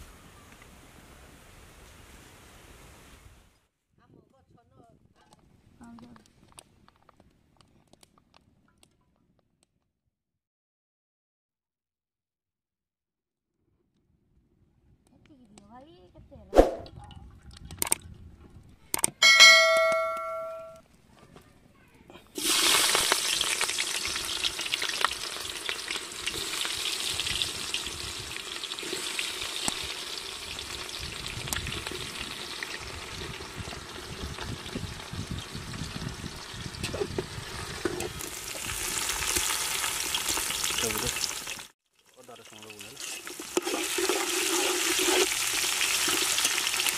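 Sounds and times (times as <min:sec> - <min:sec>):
bell-like chime: 0:19.2 - 0:20.8
onions sizzling in hot oil: 0:22.3 - 0:46.9.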